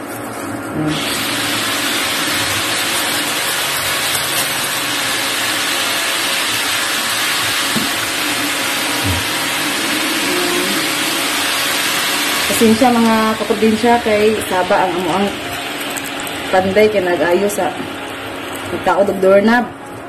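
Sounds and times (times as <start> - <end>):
power tool whirring: 0.9 - 16.6.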